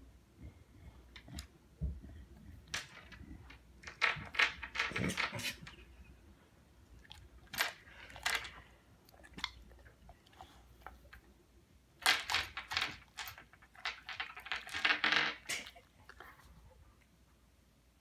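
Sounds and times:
pebbles rattling on a table: 2.6 - 5.4, 12.0 - 15.6.

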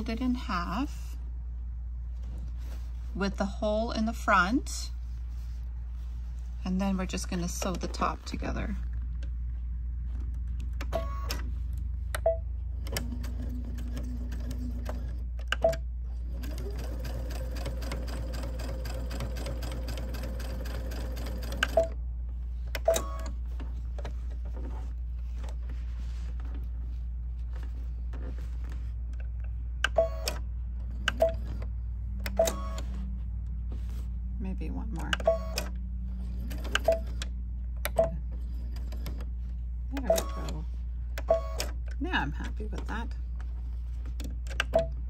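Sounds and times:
sewing machine stitching: 16.3 - 21.9.

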